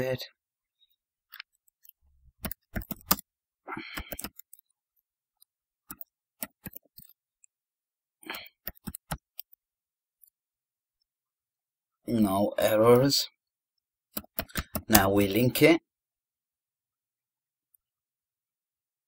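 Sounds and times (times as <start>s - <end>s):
keyboard keys clicking: 1.3s - 3.3s, 3.9s - 4.6s, 5.9s - 7.1s, 8.6s - 9.6s, 14.2s - 15.1s.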